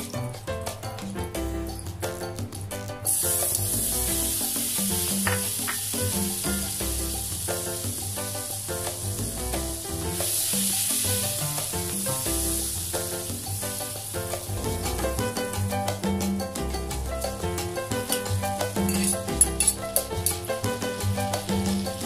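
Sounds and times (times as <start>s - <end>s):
music with a steady beat: 0.0s - 22.0s
butter sizzling in a frying pan: 3.0s - 16.0s, 17.6s - 22.0s
metal tongs in a pan: 18.9s - 19.8s.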